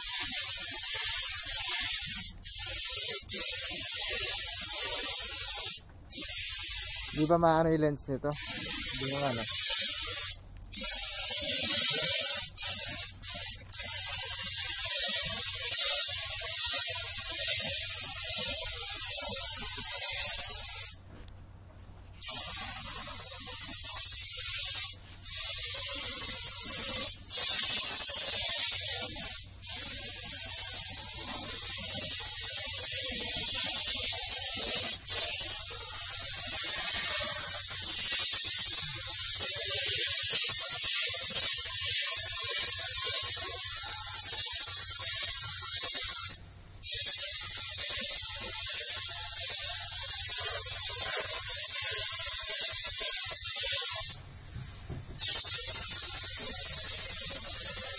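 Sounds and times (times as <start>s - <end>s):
paint spray gun hissing: 0.0s - 7.4s, 8.4s - 21.0s, 22.2s - 57.9s.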